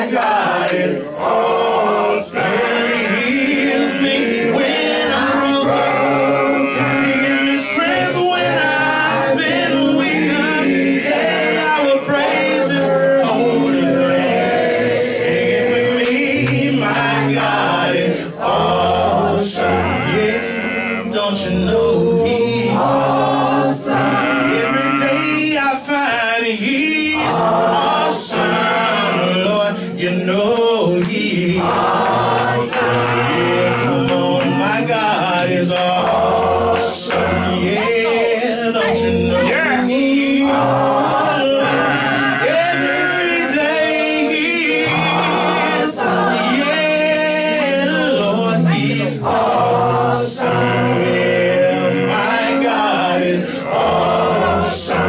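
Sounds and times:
recorded backing track: 0.0s - 55.0s
man singing into microphone: 1.9s - 10.8s, 15.8s - 23.0s, 23.7s - 31.9s, 32.7s - 55.0s.

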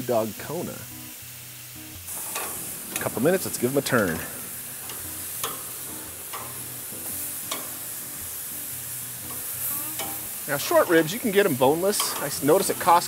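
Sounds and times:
meat sizzling on a grill: 0.0s - 13.0s
metal tongs clicking on grate: 2.1s - 8.0s, 9.3s - 10.5s, 11.9s - 13.0s.

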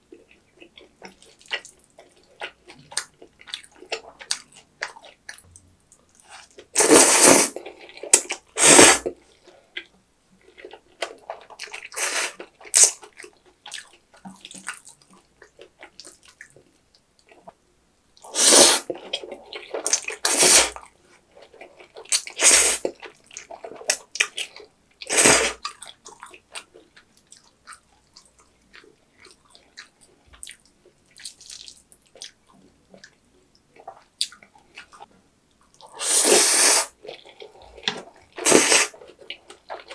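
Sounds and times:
faint chewing and smacking: 0.0s - 6.8s, 7.5s - 36.0s, 36.9s - 39.9s
person slurping noodles: 6.8s - 9.1s, 11.8s - 12.9s, 18.3s - 19.0s, 19.8s - 20.8s, 22.3s - 22.9s, 25.0s - 25.6s, 35.9s - 37.8s, 38.4s - 39.0s.

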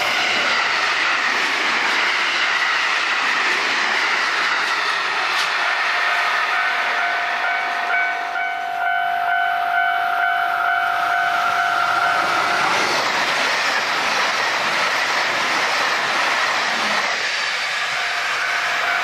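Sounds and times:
train wheels rushing on rails: 0.0s - 19.0s
train horn: 5.6s - 12.7s, 17.9s - 19.0s.

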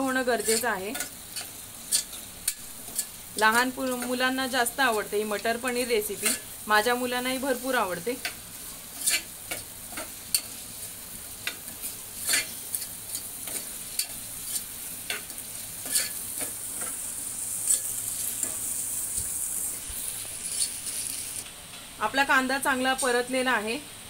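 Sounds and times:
onion sizzling in oil: 0.0s - 24.0s
spoon scraping pot: 12.2s - 17.0s.

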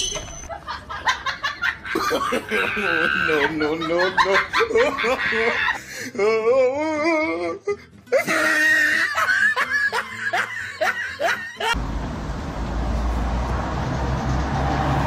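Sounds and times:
person laughing hard: 0.4s - 11.8s.

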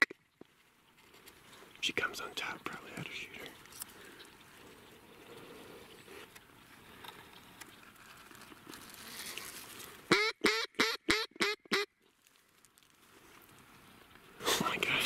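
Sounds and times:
loud duck quacks: 10.1s - 11.9s.

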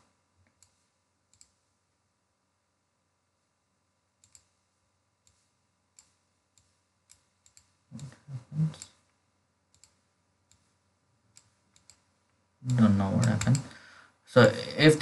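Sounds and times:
faint electronic hum: 0.0s - 15.0s
computer mouse clicking: 0.4s - 1.7s, 4.2s - 13.8s.

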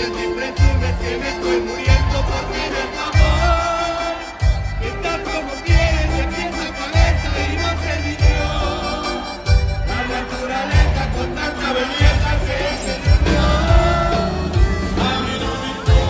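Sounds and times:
live band with accordion: 0.0s - 16.0s.

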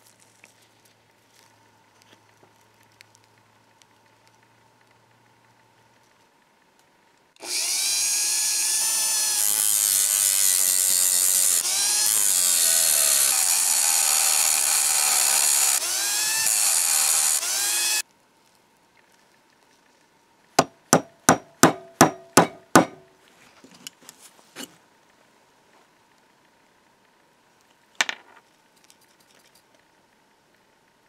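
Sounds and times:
rotary tool grinding metal: 7.4s - 18.0s
hammer tapping pin punch: 20.6s - 23.0s.

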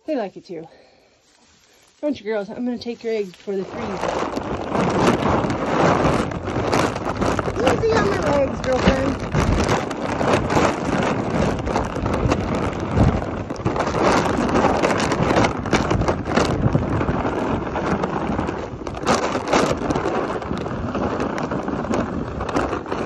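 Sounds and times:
wind buffeting microphone: 2.0s - 23.0s.

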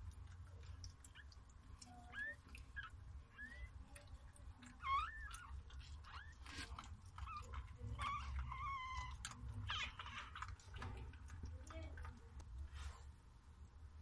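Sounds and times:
puppies squeaking and mewing: 0.6s - 11.5s.

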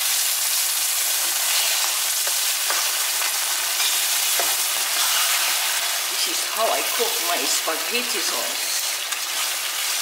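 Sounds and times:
sauce sizzling in frying pan: 0.0s - 10.0s
spatula scraping pan: 1.2s - 5.8s.

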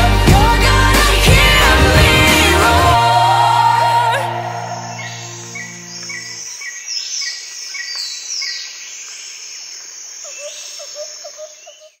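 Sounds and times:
insect hiss: 4.5s - 12.0s
birds calling: 4.9s - 12.0s.

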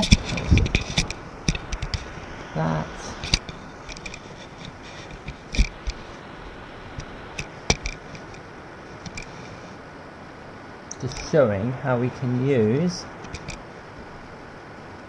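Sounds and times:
camera handling knocks and clicks: 7.0s - 8.4s.

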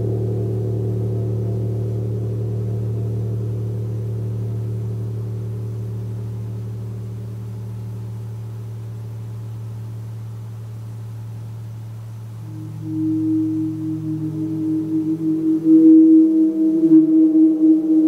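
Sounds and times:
gong ringing: 12.5s - 16.7s.

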